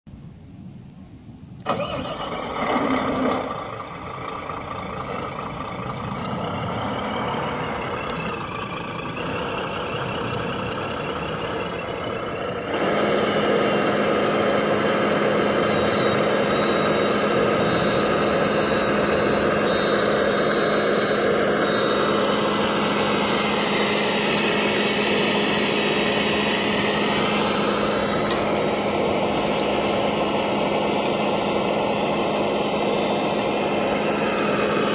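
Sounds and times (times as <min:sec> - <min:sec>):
servo hum and whine: 0:01.5 - 0:34.9
toy truck motor running: 0:02.6 - 0:34.9.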